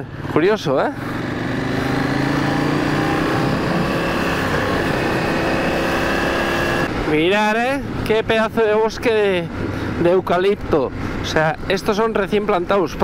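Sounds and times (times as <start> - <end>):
motorcycle engine running: 0.0 - 7.1.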